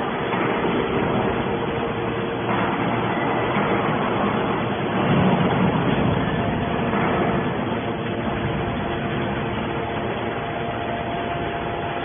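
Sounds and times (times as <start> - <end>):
metal baler mechanical drone: 0.0 - 12.0.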